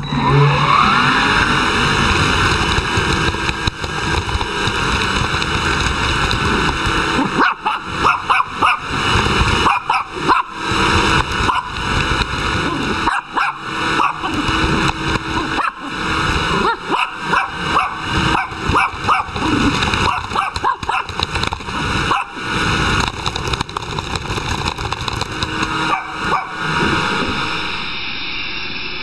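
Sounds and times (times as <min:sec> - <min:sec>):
steady background noise: 0:00.0 - 0:29.0
small dog barking and yipping: 0:07.1 - 0:10.7, 0:11.4 - 0:11.8, 0:12.6 - 0:21.2, 0:21.9 - 0:22.5, 0:25.8 - 0:26.7.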